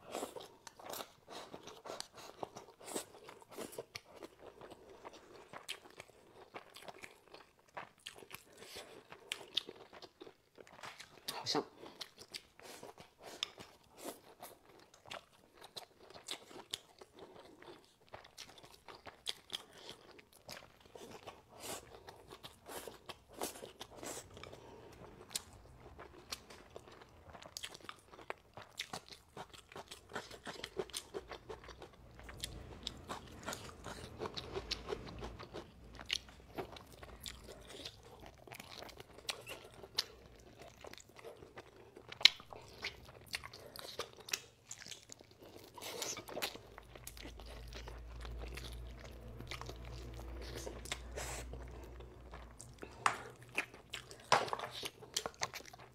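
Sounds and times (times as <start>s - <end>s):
wet chewing: 0.0s - 55.9s
low rumble: 24.2s - 28.4s, 29.8s - 39.0s, 46.4s - 53.6s.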